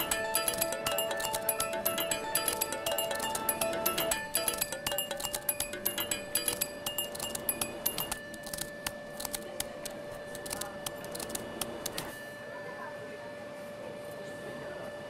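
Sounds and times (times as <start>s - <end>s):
glassy percussion hits: 0.0s - 8.3s
held electronic tone: 0.0s - 9.2s.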